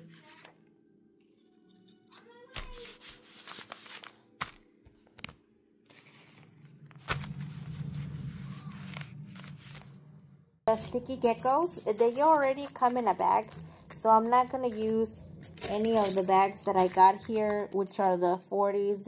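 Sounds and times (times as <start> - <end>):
paper rustling and crinkling: 2.5 - 10.0, 10.7 - 18.1.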